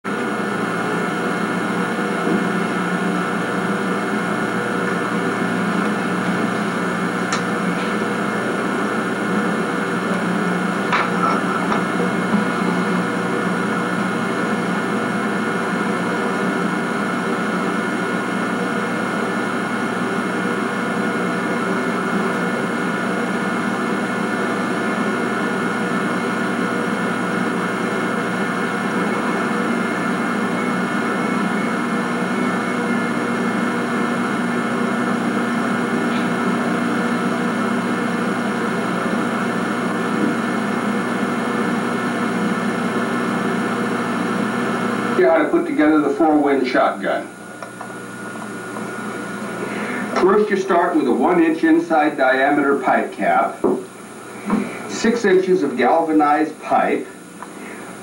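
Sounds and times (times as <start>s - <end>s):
electrical hiss and hum: 0.1s - 58.0s.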